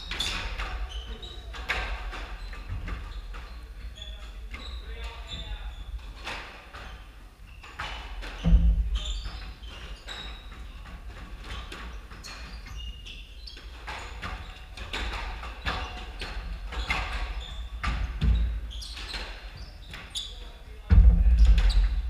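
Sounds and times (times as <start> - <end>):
sneakers squeaking on floor: 0.0 - 22.0
heavy low thuds: 8.4 - 9.2, 20.9 - 22.0.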